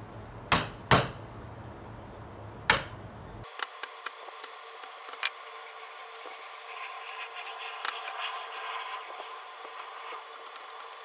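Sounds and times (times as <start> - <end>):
low background hum: 0.0 - 11.0
hammer striking metal punch: 0.5 - 1.2, 2.7 - 3.0.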